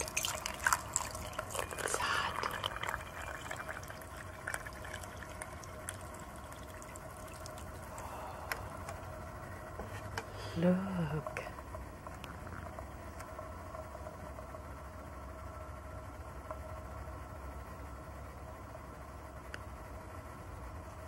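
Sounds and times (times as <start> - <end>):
hot water pouring into a glass: 0.0 - 8.1.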